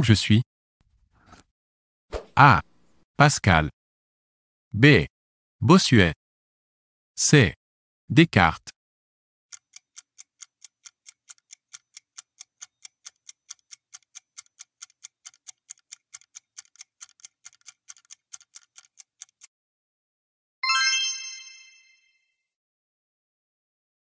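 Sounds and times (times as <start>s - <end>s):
bright chime: 20.6s - 22.3s.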